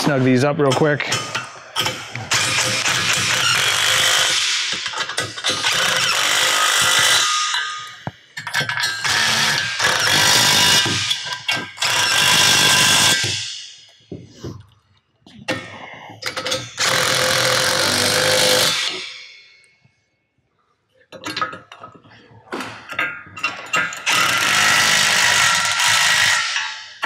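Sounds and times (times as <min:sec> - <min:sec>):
impact driver hammering: 0:01.0 - 0:13.5, 0:16.4 - 0:19.1, 0:22.9 - 0:27.0.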